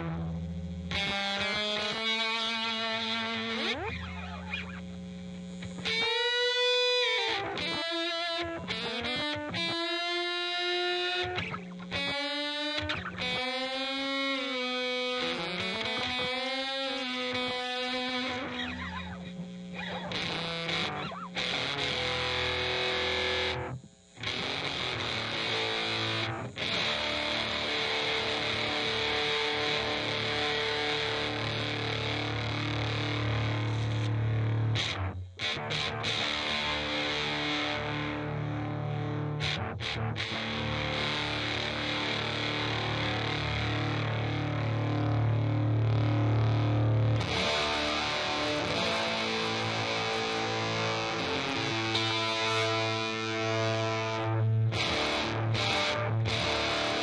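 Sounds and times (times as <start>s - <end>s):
distorted electric guitar notes: 0.0s - 57.0s.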